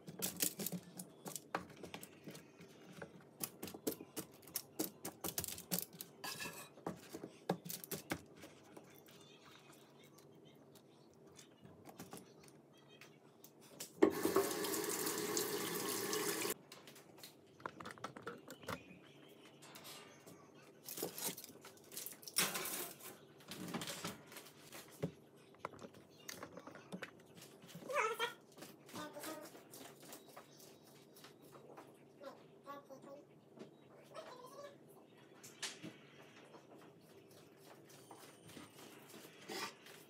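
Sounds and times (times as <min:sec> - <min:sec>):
clicks and rustles on foil: 0:00.0 - 0:02.1, 0:03.3 - 0:06.4, 0:20.8 - 0:25.0
tap running into sink: 0:14.0 - 0:16.5.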